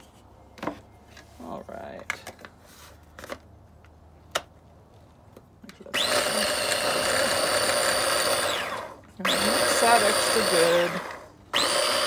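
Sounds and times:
blender motor whining: 5.9 - 12.0.

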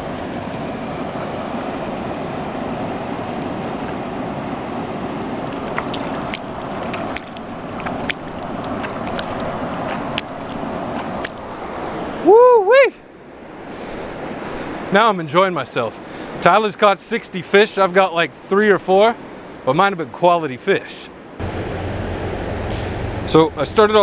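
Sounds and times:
fast-flowing river rushing: 0.0 - 16.5
hands splashing in water: 5.4 - 11.7.

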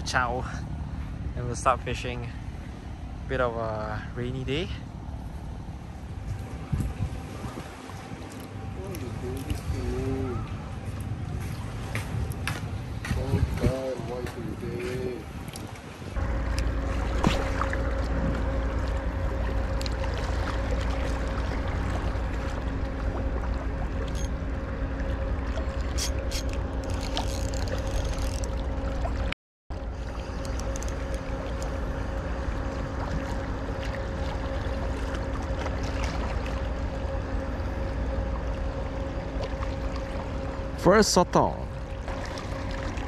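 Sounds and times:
wind rumble on microphone: 0.8 - 40.7
motor humming: 16.1 - 43.0.

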